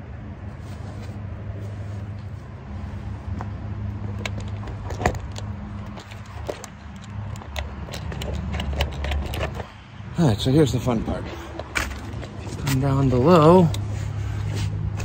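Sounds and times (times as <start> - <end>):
metallic clinks and rattles: 3.9 - 9.8, 11.3 - 13.8.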